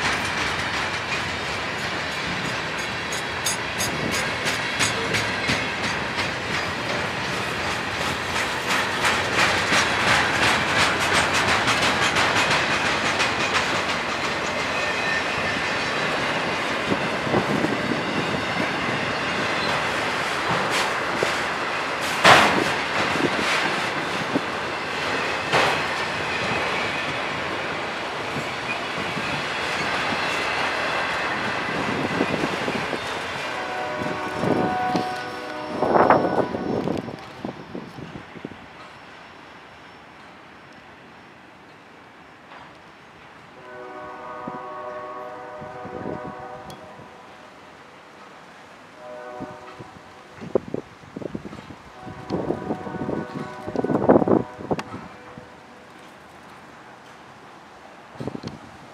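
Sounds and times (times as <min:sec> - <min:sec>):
wheels clicking over rail joints: 0:00.0 - 0:17.8
freight train rumbling past: 0:00.0 - 0:58.9.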